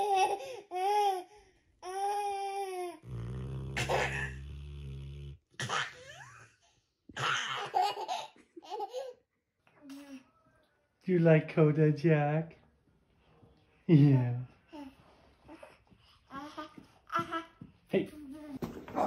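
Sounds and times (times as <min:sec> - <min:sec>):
toddler laughing: 0:00.0 - 0:01.2, 0:03.8 - 0:04.4, 0:07.2 - 0:09.2
dog snoring: 0:03.0 - 0:05.4.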